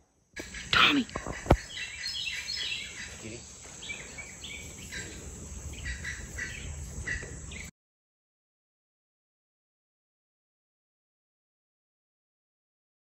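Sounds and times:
bird chirping: 0.4 - 7.7.

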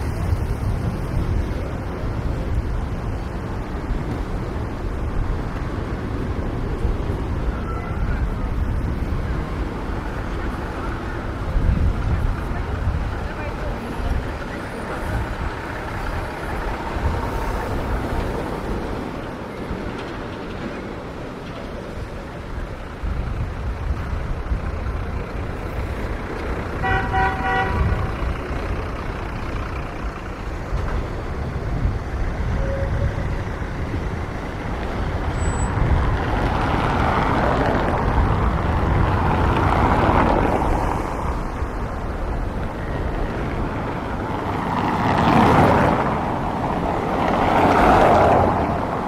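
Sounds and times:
street traffic: 0.0 - 49.0
vehicle horn toot: 26.8 - 28.0.

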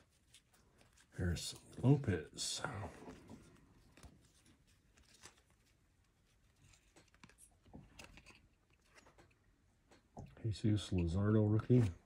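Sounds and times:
paper cards ticking: 2.7 - 10.1.

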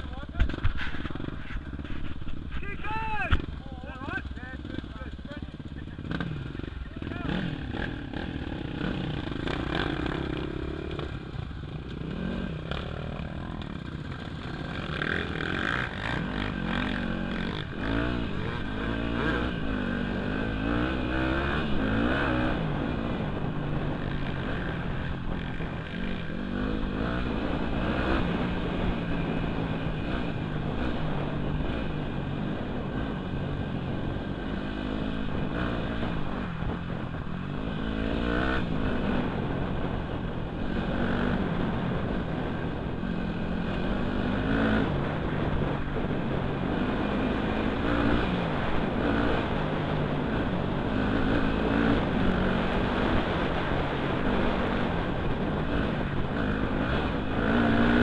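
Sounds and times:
dirt bike engine revving: 0.0 - 58.0
other trail bikes running: 0.0 - 58.0.

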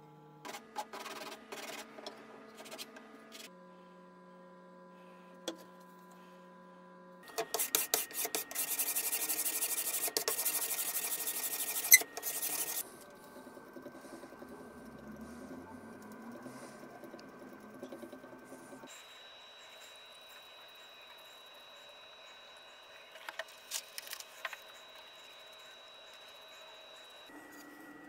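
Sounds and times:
blade scraping wood: 7.3 - 13.1.

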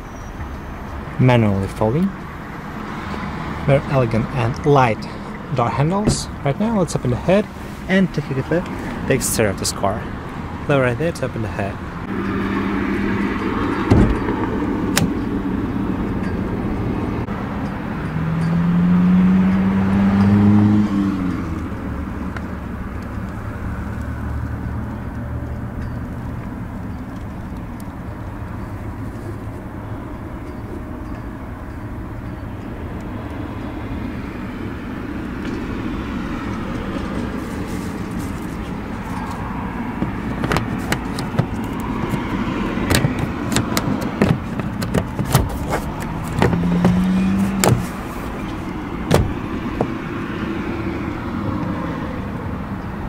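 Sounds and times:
thump: 13.9 - 14.2, 49.1 - 49.9
car engine idling: 21.6 - 50.8.

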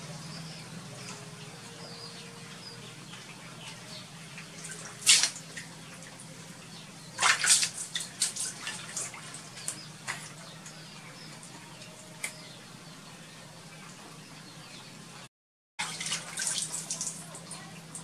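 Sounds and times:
water splashing in plastic tub: 3.2 - 6.3, 7.0 - 10.8, 15.8 - 18.0.

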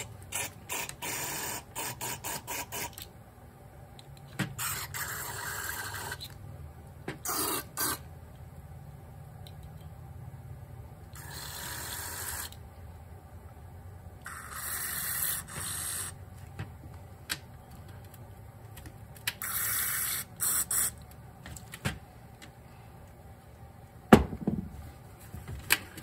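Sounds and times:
aerosol spray hissing: 7.3 - 8.0, 19.4 - 21.0.

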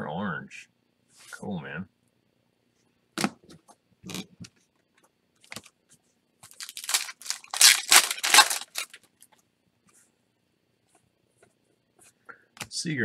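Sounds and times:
foil wrapper tearing and crinkling: 6.5 - 9.0.

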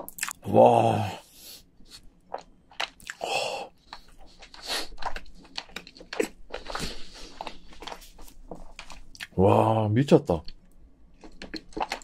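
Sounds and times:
wet chewing and lip smacks: 1.9 - 3.2, 3.8 - 9.4, 10.5 - 12.0.

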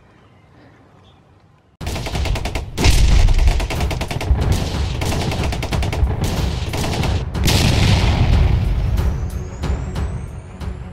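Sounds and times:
gunfire-like cracks and bangs: 1.8 - 9.0
deep booms: 2.1 - 9.3.

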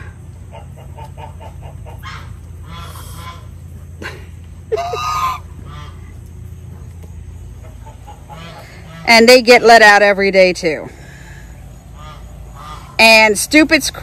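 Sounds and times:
loud poultry call: 0.0 - 6.2, 7.6 - 9.6, 11.0 - 13.4
poultry clucking: 0.0 - 10.1, 11.6 - 14.0
low rumble: 0.0 - 13.3.

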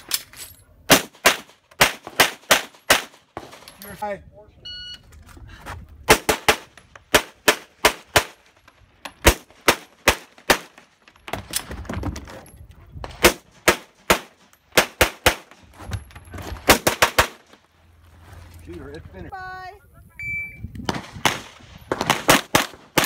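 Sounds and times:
pistol firing fast shots: 20.9 - 23.0.

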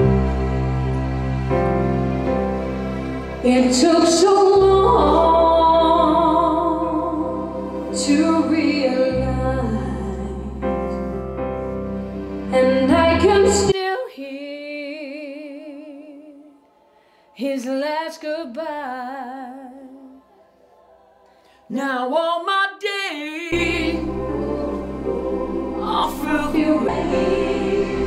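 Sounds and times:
backing music: 0.0 - 13.7, 23.6 - 28.0
woman singing a slow ballad: 3.4 - 10.9, 17.4 - 20.2.

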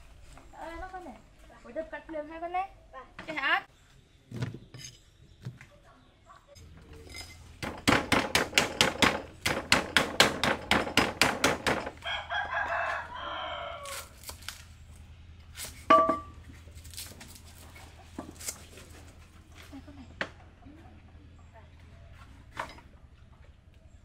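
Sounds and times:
rooster crowing: 11.9 - 14.2.

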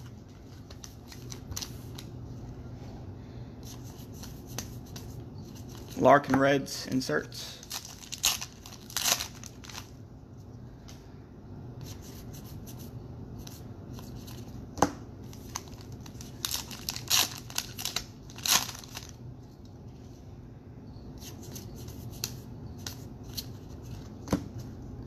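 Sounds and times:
foil wrappers tearing and crinkling: 7.6 - 9.9, 15.3 - 19.2.

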